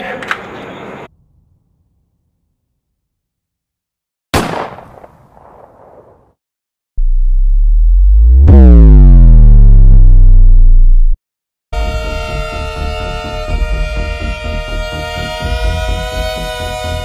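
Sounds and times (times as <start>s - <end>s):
gunshot: 4.4s - 6.3s
deep electronic tone: 7.0s - 11.2s.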